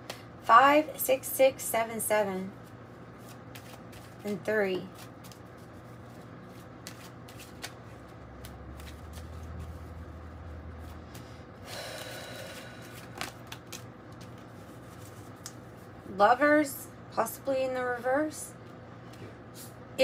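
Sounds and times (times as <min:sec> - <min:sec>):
cards being shuffled: 0:02.6 - 0:11.3, 0:12.7 - 0:16.0.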